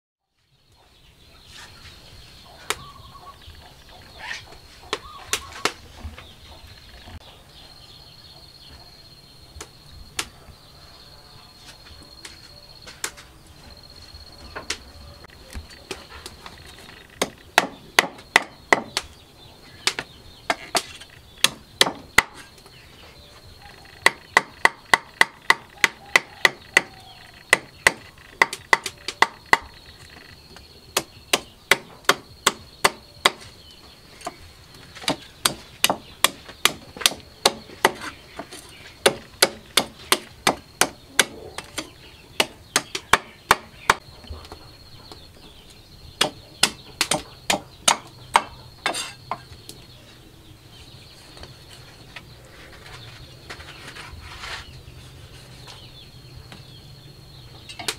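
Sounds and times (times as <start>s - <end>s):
cleaver chopping fish on wood: 17.2s - 19.1s, 19.9s - 22.5s, 24.0s - 29.8s, 31.0s - 33.4s, 35.0s - 44.0s, 46.2s - 49.4s.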